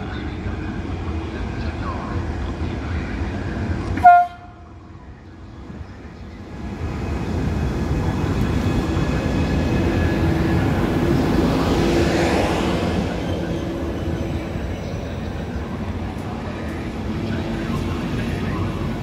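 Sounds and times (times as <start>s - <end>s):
short train horn toot: 4.0s - 4.6s
train wheels rumbling past: 6.5s - 19.0s.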